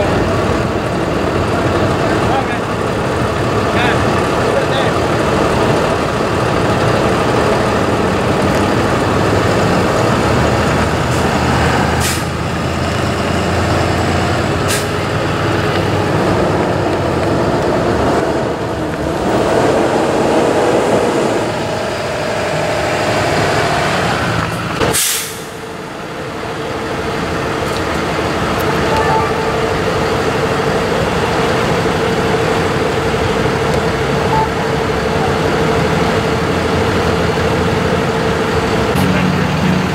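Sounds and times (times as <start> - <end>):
diesel truck engines running: 0.0 - 39.9
air brake hisses: 12.0 - 12.3, 24.9 - 25.6.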